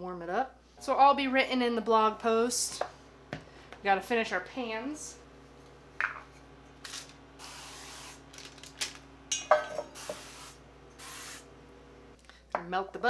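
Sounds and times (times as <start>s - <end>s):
cooking spray hissing: 6.3s - 11.6s.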